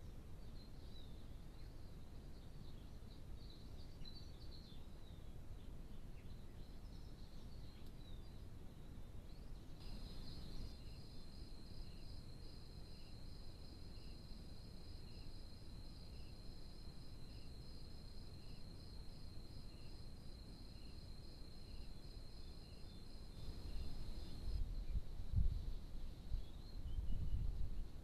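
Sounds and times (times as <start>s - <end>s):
crickets trilling: 9.8s - 24.6s.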